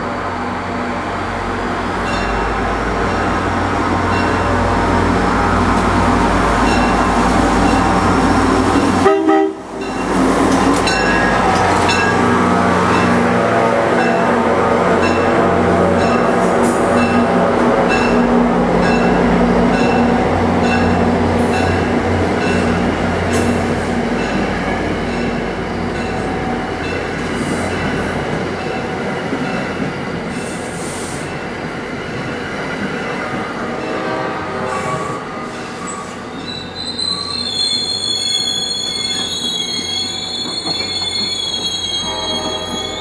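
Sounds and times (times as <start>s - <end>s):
low train hum: 0.0s - 43.0s
train wheels squealing: 34.8s - 43.0s.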